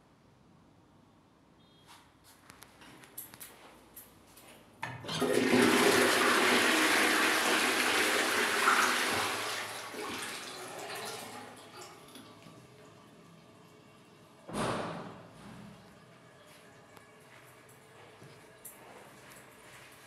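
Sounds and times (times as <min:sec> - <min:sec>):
toilet water rushing: 0:04.9 - 0:14.4.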